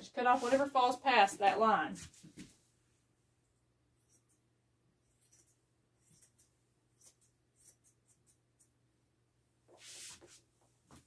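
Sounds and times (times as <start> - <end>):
scraping rustle: 0.3 - 0.9.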